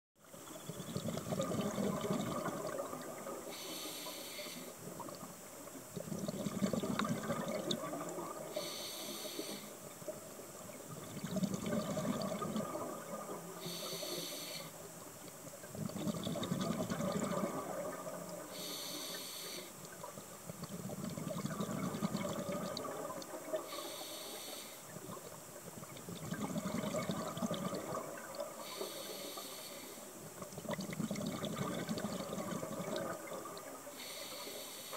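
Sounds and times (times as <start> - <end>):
exhaled bubbles burbling: 0.3 - 3.6, 4.8 - 8.6, 9.9 - 13.9, 15.6 - 18.6, 19.8 - 23.8, 24.9 - 28.8, 30.2 - 34.0
regulator inhale hiss: 3.5 - 4.9, 8.5 - 10.0, 13.6 - 14.9, 18.4 - 19.9, 23.6 - 25.0, 28.5 - 30.3, 33.9 - 34.9.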